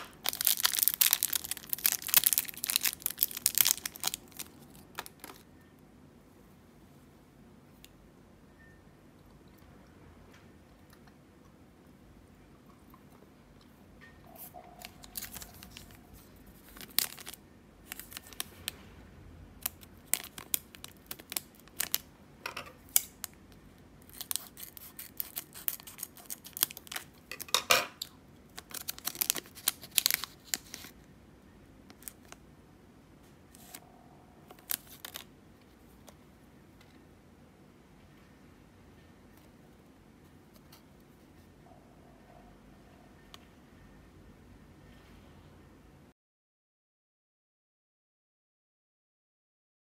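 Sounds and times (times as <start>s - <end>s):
foil wrapper crinkling: 0.0s - 5.4s, 14.8s - 18.6s, 19.6s - 22.1s, 24.0s - 27.5s, 28.5s - 31.0s, 34.4s - 35.3s
wrapper tearing: 0.0s - 5.4s, 14.8s - 18.6s, 19.6s - 22.1s, 24.0s - 27.2s, 28.5s - 31.0s, 34.5s - 35.3s.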